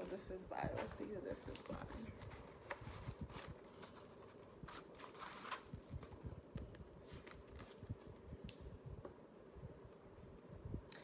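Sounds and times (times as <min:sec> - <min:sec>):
hands rustling a pouch: 0:00.1 - 0:08.4.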